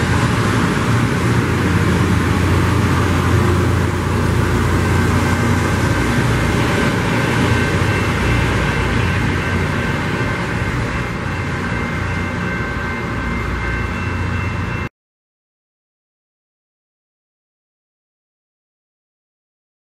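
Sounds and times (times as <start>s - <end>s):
rail grinder train moving: 0.0s - 14.9s.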